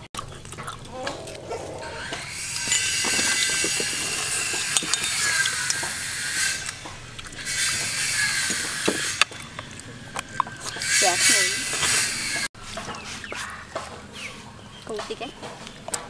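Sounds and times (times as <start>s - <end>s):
metal spoon scraping a shell: 2.0s - 12.5s.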